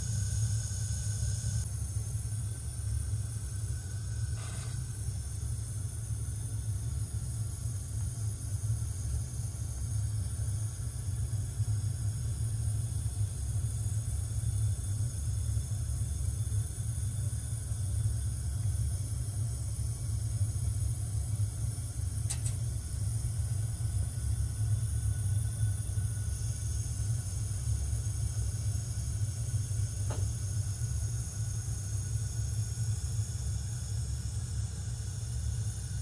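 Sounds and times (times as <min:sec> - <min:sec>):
short click: 0:22.3 - 0:22.6.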